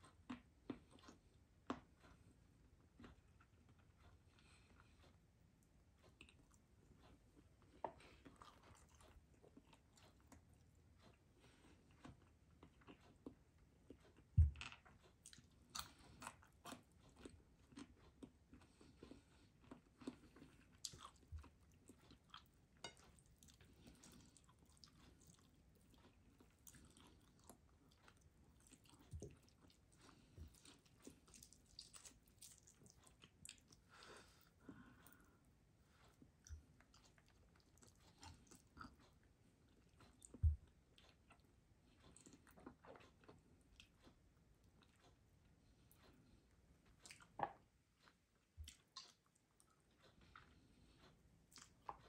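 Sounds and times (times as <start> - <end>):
person chewing food: 0.0 - 52.0.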